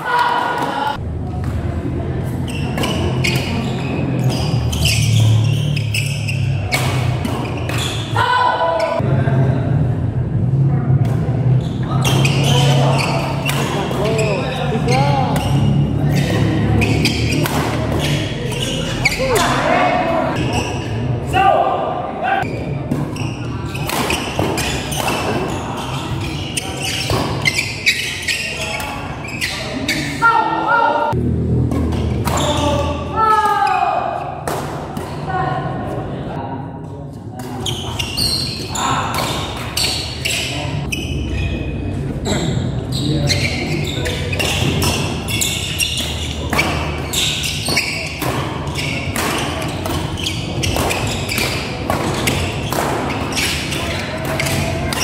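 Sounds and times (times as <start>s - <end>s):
shoes squeaking on court floor: 2.3s - 8.2s, 11.5s - 21.0s, 22.4s - 30.2s, 37.4s - 55.0s
rackets hitting shuttlecock: 17.1s - 18.2s, 22.9s - 25.5s, 44.4s - 55.0s.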